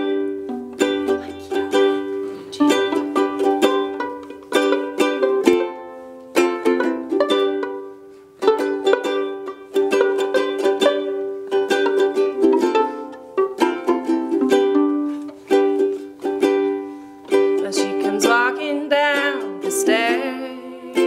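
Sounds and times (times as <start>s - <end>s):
ukulele plucking: 0.0s - 21.0s.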